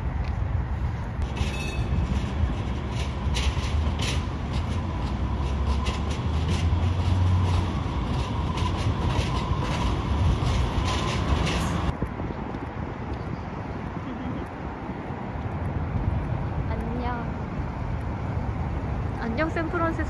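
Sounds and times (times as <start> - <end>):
streetcar rumbling on rails: 0.0 - 20.0
rail clicks: 1.2 - 13.4.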